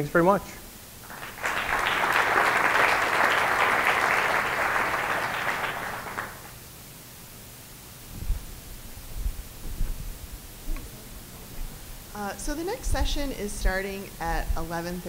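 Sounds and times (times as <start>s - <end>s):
audience applauding: 1.0s - 6.6s.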